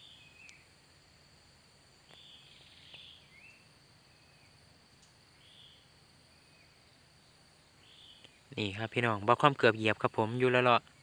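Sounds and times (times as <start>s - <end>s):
soft bird chirps: 0.0s - 0.8s, 2.0s - 9.2s
high insect drone: 0.0s - 11.0s.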